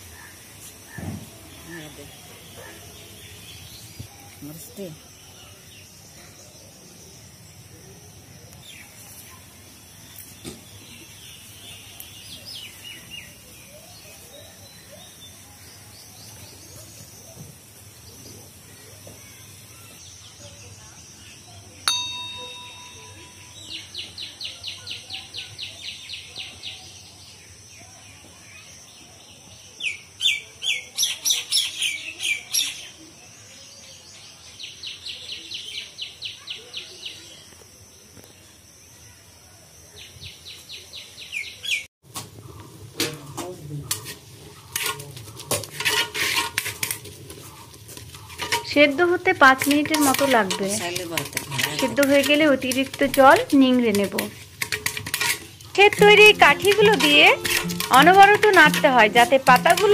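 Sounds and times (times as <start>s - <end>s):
birds chirping: 18.1s - 27.0s, 55.6s - 59.9s.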